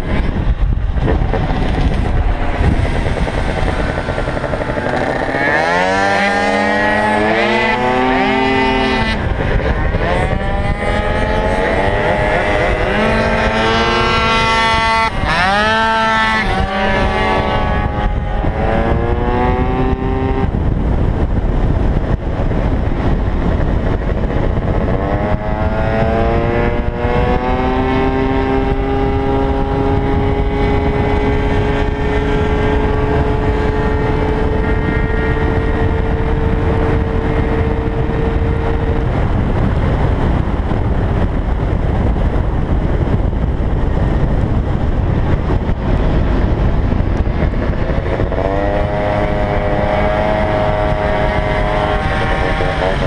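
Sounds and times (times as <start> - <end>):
scooter engine at full throttle: 0.0 - 53.0
wind rushing over microphone: 0.0 - 53.0.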